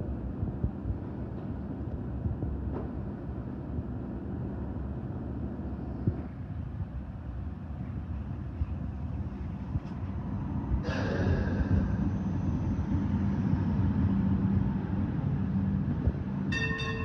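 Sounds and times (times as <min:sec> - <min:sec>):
train running gear rumbling: 0:00.0 - 0:17.0.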